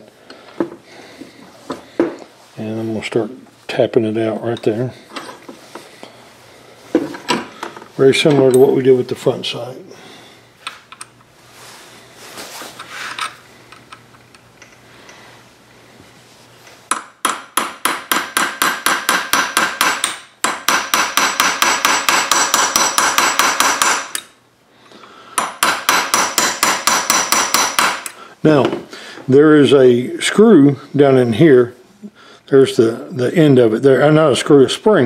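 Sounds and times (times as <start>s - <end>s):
hammer tapping a punch: 16.9s - 24.2s, 25.4s - 28.1s.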